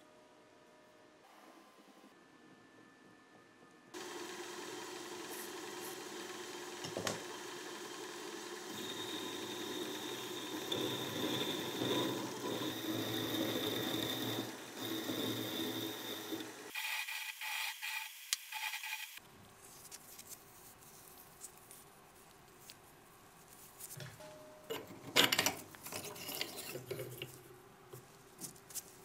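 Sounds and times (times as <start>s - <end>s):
metal lathe grinding: 4.0s - 19.2s
faint handling of metal part: 23.8s - 29.0s.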